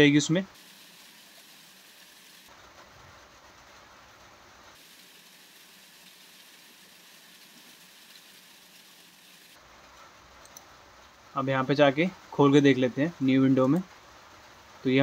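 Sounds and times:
heavy rain hiss: 0.0 - 15.0.

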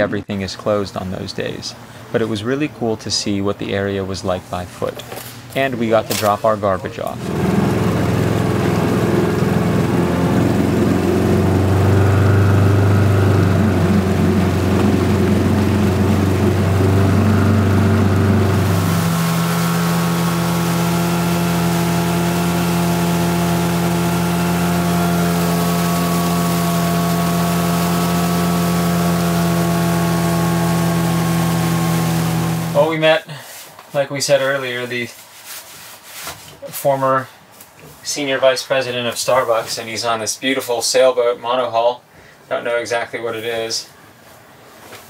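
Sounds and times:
outboard motor running: 7.1 - 32.9.

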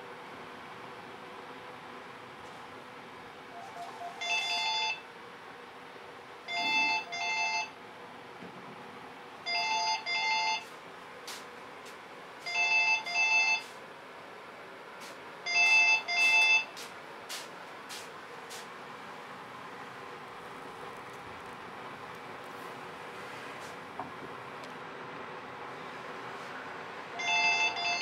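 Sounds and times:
cordless telephone ringing: 3.6 - 5.0, 27.2 - 28.0.

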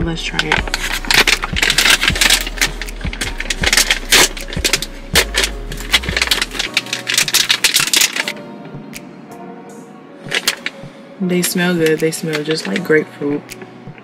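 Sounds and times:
plastic snack packet crinkling: 0.6 - 8.4.

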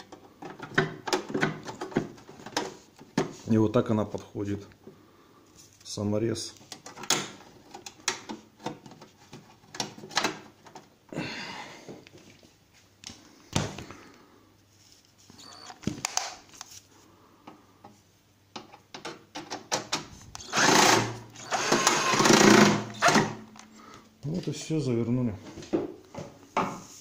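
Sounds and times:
cordless screwdriver running: 20.4 - 23.3.

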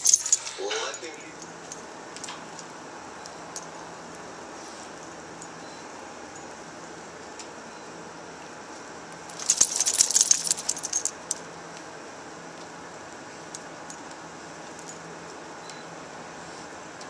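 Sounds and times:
dog collar jingling: 0.0 - 2.8, 3.6 - 4.2, 9.3 - 11.4.

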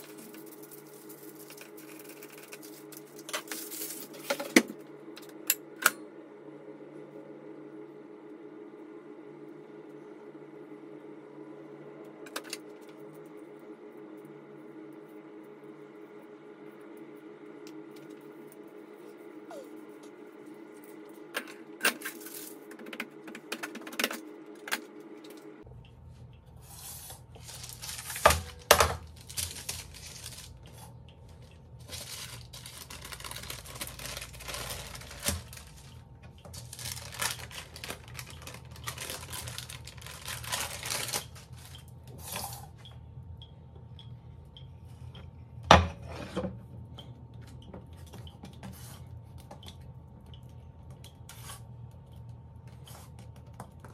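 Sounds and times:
baking paper rustling: 0.0 - 4.7, 26.6 - 41.7
steady hum: 0.0 - 53.9.

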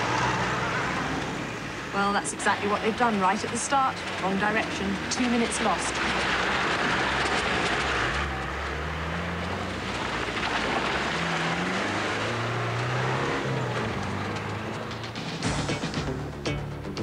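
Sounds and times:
tyres on gravel: 0.0 - 16.4
vehicle engine revving: 0.0 - 16.5.

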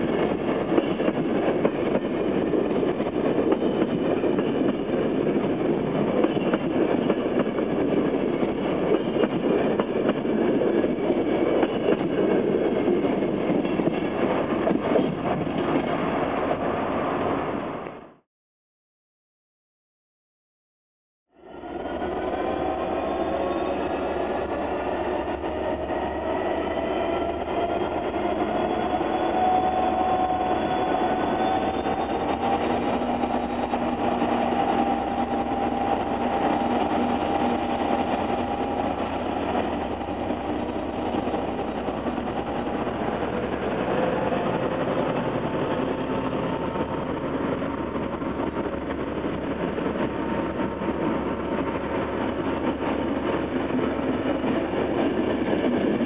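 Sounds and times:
train carriages rolling on rails: 0.0 - 17.4, 21.6 - 56.0
diesel locomotive engine whining: 21.4 - 56.0.

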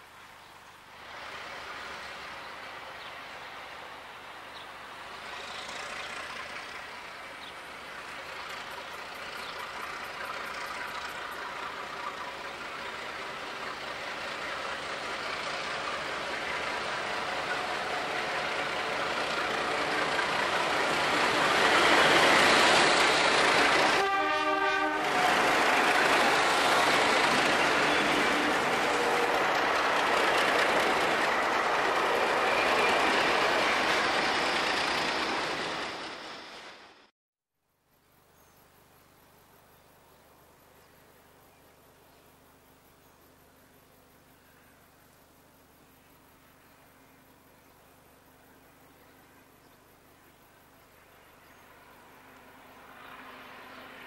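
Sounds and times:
diesel locomotive engine running: 3.6 - 37.1
train horn blast: 23.8 - 25.5.

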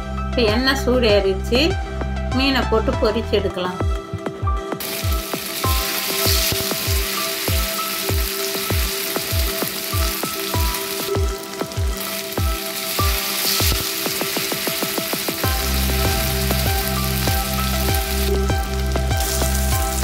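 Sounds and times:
background music with steady beat: 0.0 - 20.0
fish sizzling in hot oil: 4.8 - 20.0.

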